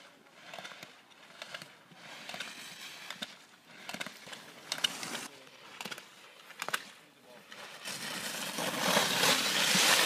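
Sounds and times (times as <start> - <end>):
skis scraping on snow: 0.0 - 5.3, 7.4 - 10.0.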